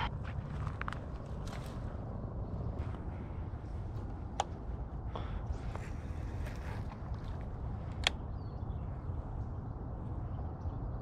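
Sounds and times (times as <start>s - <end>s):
footsteps in dry grass: 0.0s - 7.7s
steady low rumble: 0.0s - 11.0s.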